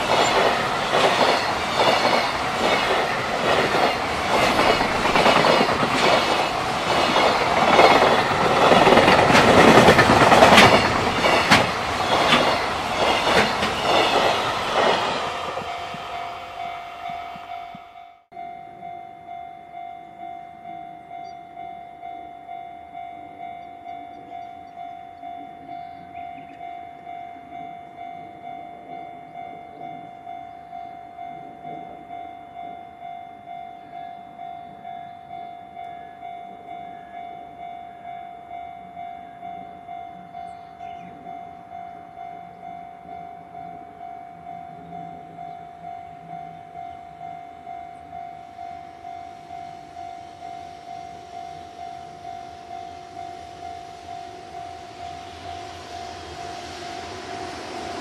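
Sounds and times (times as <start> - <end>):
level crossing alarm clanging: 0.0 - 36.6
approaching freight train: 0.0 - 58.0.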